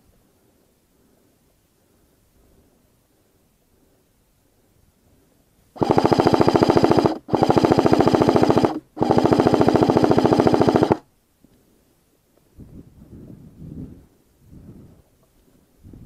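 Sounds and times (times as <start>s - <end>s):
airsoft rifle firing bursts: 5.8s - 11.1s.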